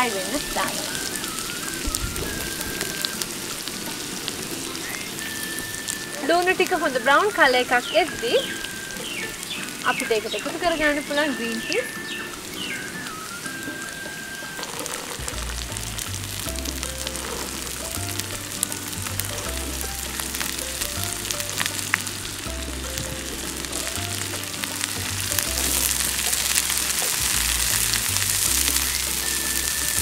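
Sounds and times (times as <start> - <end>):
vegetables sizzling in oil: 0.0 - 30.0
music with stepping bass line: 15.2 - 30.0.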